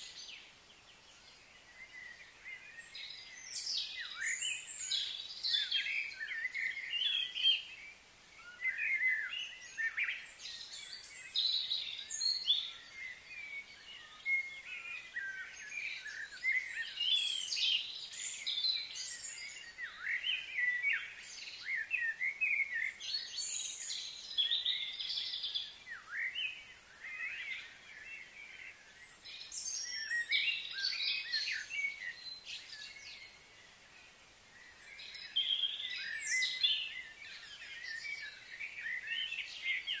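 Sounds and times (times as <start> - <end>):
birds chirping: 0.0 - 40.0
faint steady hiss: 0.0 - 40.0.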